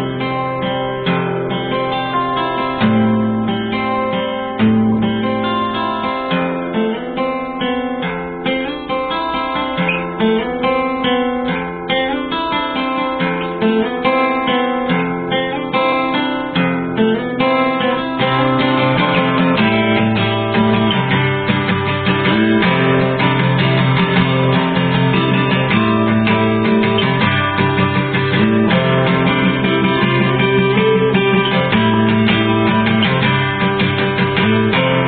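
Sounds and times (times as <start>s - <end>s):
acoustic guitar music: 0.0s - 35.0s.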